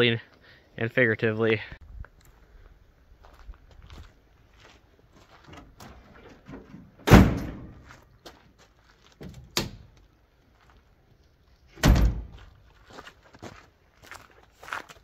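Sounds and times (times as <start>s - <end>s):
tailgate slamming shut: 6.4s - 7.8s, 11.8s - 12.3s
glass hatch slamming shut: 7.0s - 7.8s, 11.8s - 12.3s.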